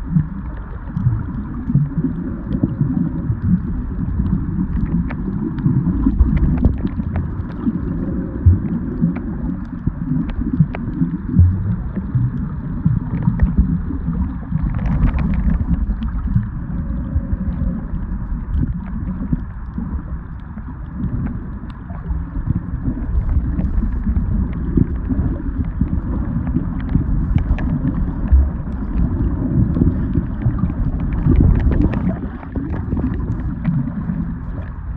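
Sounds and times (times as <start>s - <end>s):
underwater rumble and sloshing: 0.0s - 34.9s
faint clicks: 25.9s - 29.1s.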